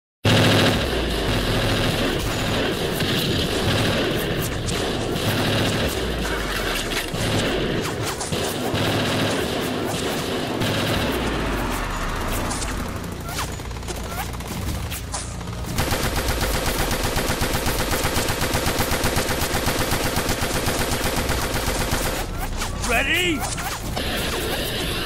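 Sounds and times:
continuous gunfire: 0.2 - 25.0.

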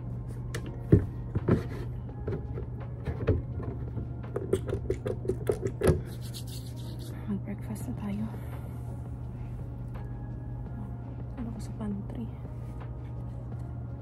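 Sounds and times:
steady low hum: 0.0 - 14.0
hands rubbing: 6.0 - 7.2.

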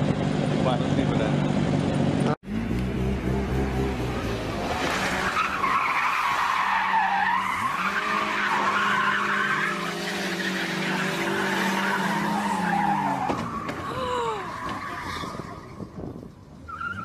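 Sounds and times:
car engine revving: 0.0 - 13.6.

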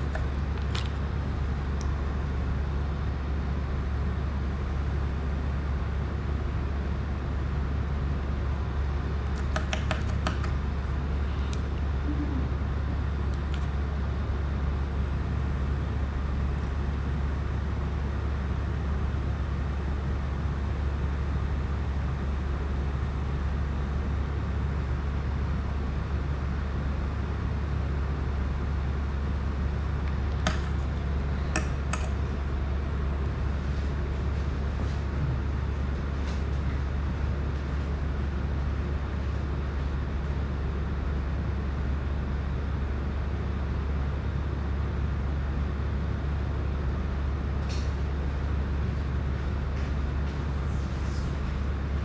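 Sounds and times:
low hum with hiss: 0.0 - 52.0.

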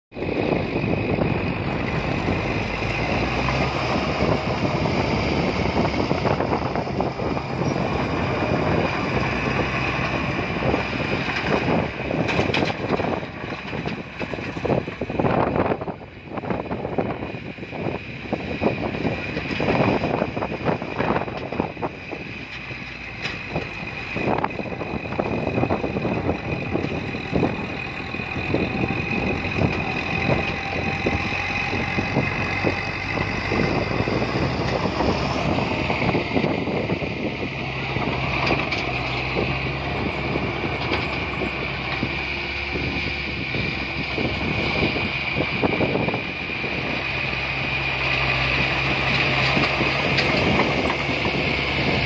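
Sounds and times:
bulldozer diesel engine: 0.1 - 52.0
high whine: 0.1 - 52.0
tracks and blade clattering: 7.7 - 15.1, 25.6 - 45.2, 46.9 - 52.0.

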